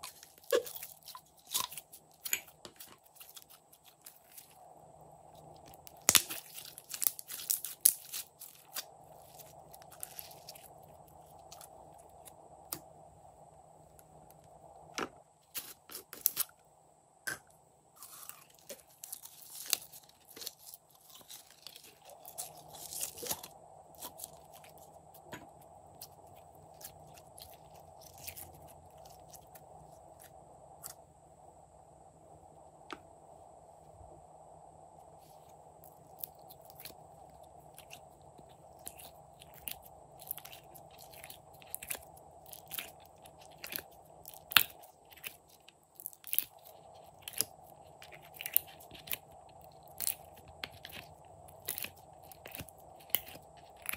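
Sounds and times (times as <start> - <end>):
slime squeezed sticky crackles: 0.0 - 4.6, 5.4 - 12.4, 37.6 - 53.9
faint steady hum: 0.0 - 53.9.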